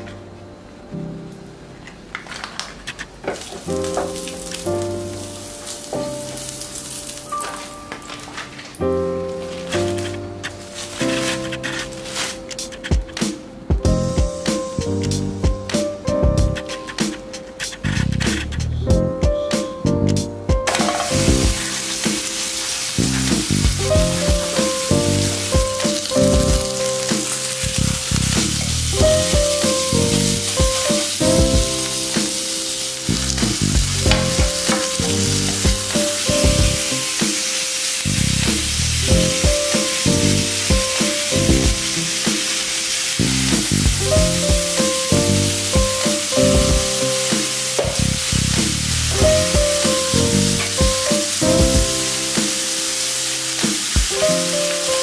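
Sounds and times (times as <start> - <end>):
steak sizzling in a pan: 3.4 - 8.5, 9.2 - 12.8, 20.6 - 55.0.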